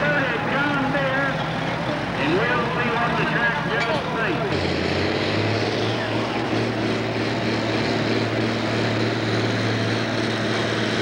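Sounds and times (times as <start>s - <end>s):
tractor diesel engine running flat out: 0.0s - 11.0s.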